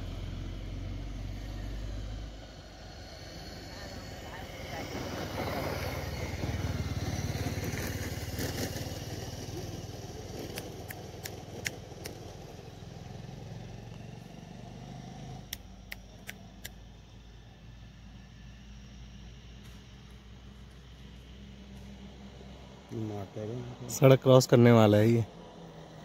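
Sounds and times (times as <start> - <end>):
vehicle engine running: 0.0 - 26.0
sharp short clicks: 15.5 - 16.8.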